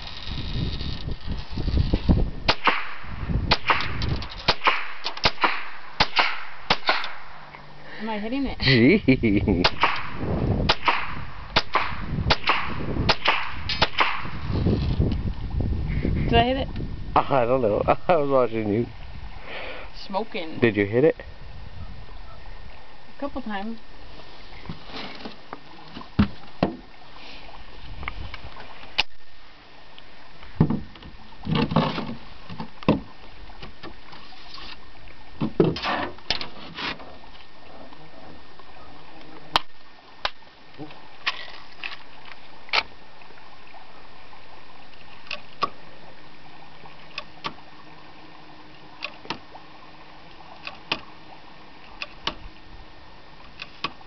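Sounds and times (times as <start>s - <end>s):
rifle shots with echo: 2.5s - 7.4s, 9.6s - 14.4s
rifle handling clicks and rattles: 3.8s - 5.4s.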